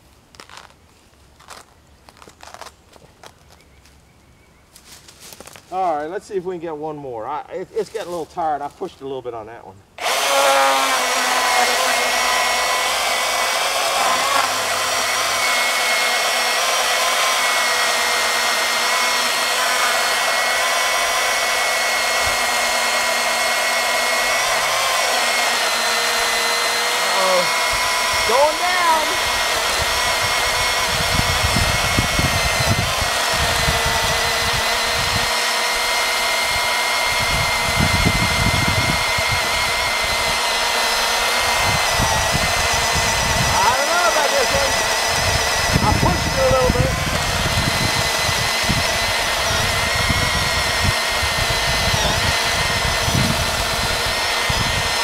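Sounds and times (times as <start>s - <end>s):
electric chainsaw cutting log: 10.0s - 55.0s
low rumbling: 44.5s - 55.0s.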